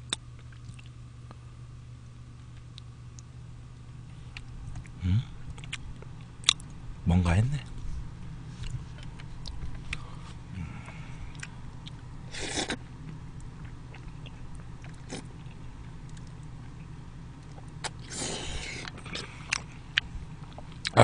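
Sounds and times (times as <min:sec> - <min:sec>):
chewing with wet mouth clicks: 0:00.0 - 0:01.4, 0:05.5 - 0:06.8, 0:08.6 - 0:10.0, 0:10.8 - 0:18.1, 0:18.8 - 0:21.0.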